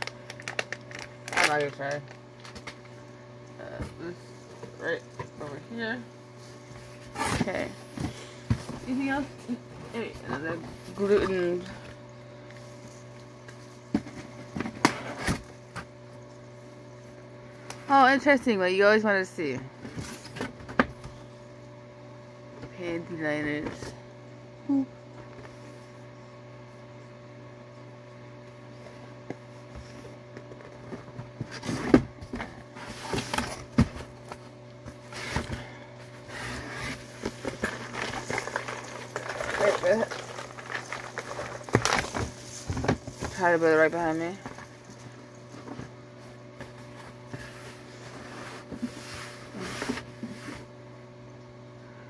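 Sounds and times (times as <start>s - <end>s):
package rustling and handling: 0.0s - 3.5s, 36.9s - 48.1s
low electrical hum: 0.0s - 52.0s.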